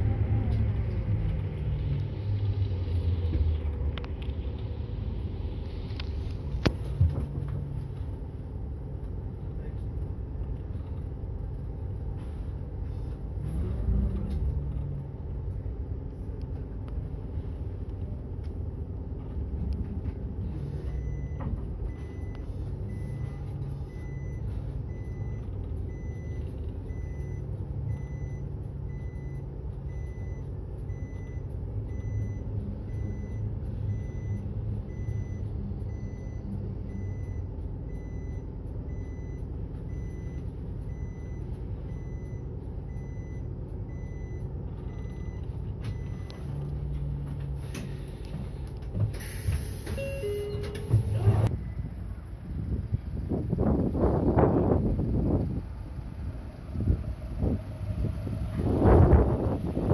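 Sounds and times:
bus engine running low: 0.0 - 59.9
reversing alarm beeping: 20.8 - 46.6, 49.4 - 51.9.

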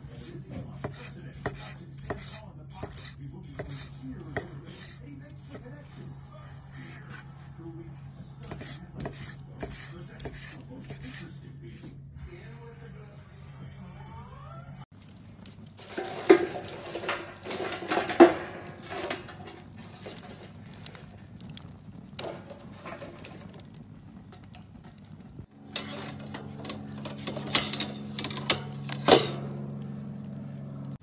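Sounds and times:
low hum: 13.0 - 31.0
utensils knocking on cookware: 15.8 - 21.1, 25.6 - 29.7.

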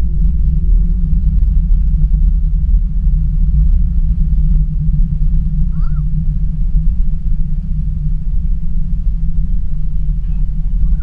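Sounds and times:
aircraft cabin rumble: 0.0 - 11.0.

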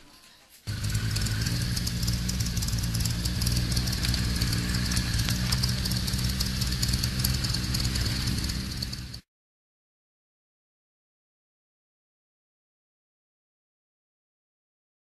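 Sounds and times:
fast engine ticking: 0.7 - 9.2
motorcycle engine idling: 0.7 - 9.2.

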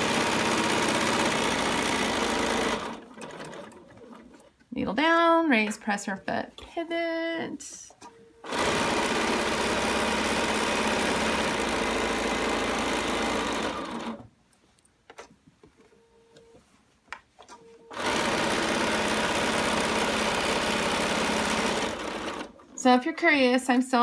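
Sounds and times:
sewing machine stitching: 0.0 - 4.5, 8.4 - 14.2, 17.9 - 22.8.

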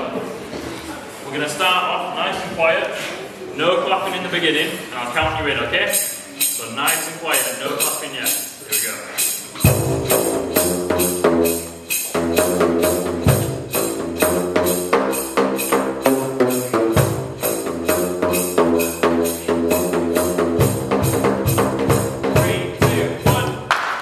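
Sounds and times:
sustained bass line: 9.7 - 23.6
pipes slapped with flip-flops: 23.7 - 24.0.

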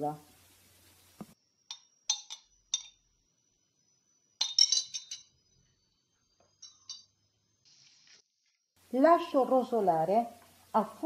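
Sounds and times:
kitchenware clinking: 1.7 - 3.0, 4.4 - 5.4, 6.6 - 7.2.

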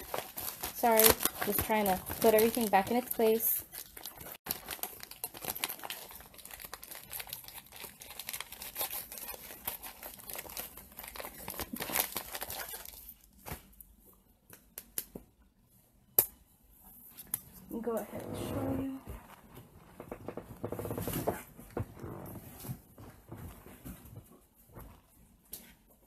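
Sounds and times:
packaging crinkling: 0.0 - 13.4.

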